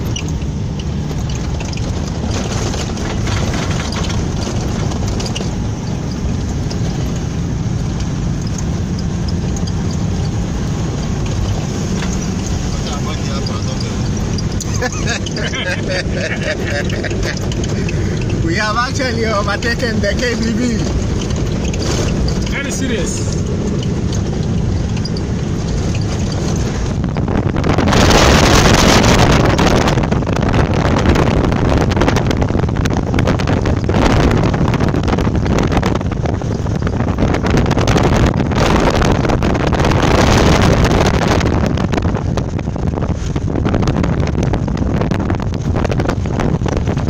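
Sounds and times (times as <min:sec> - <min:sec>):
vehicle rumbling on dirt road: 0:00.0 - 0:47.0
wind buffeting the microphone: 0:00.0 - 0:47.0.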